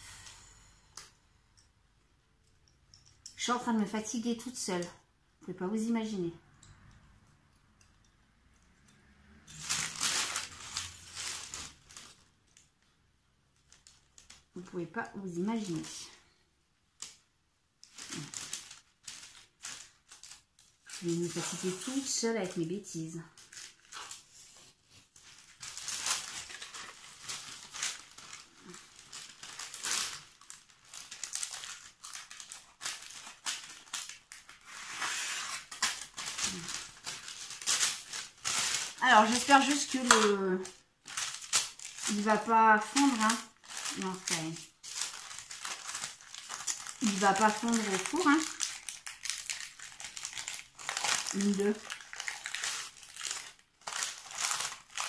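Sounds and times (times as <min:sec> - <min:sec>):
baking paper crinkling: 0:09.5 - 0:12.8, 0:13.4 - 0:16.3, 0:17.8 - 0:55.0.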